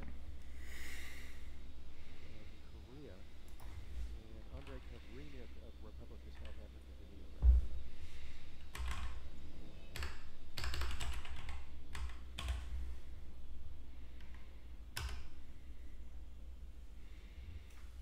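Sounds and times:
steady low hum: 0:00.0 - 0:18.0
computer keyboard typing: 0:08.7 - 0:09.2, 0:09.9 - 0:12.7, 0:14.2 - 0:15.4.

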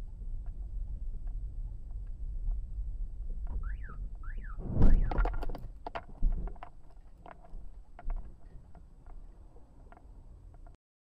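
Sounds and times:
warbling chirp: 0:03.6 - 0:05.2
sharp clicks and knocks: 0:04.8 - 0:10.8.

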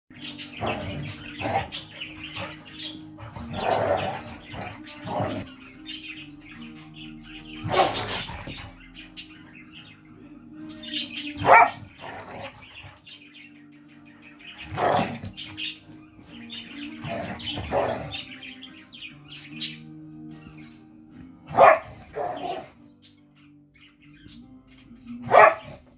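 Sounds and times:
dogs growling and barking: 0:00.1 - 0:09.4, 0:10.7 - 0:13.3, 0:14.4 - 0:19.1, 0:21.3 - 0:22.9, 0:25.1 - 0:25.9
pet bird chirping: 0:00.1 - 0:25.9.

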